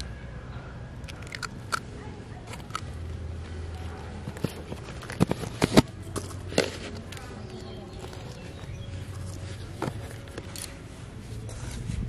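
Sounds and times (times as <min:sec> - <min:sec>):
eggshells cracking over metal bowl: 0:01.0 - 0:01.9.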